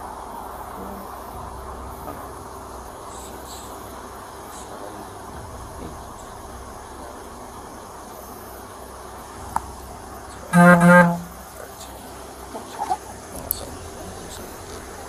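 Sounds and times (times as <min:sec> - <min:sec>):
low background noise: 0:00.0 - 0:15.0
vehicle horn toots: 0:10.3 - 0:11.9.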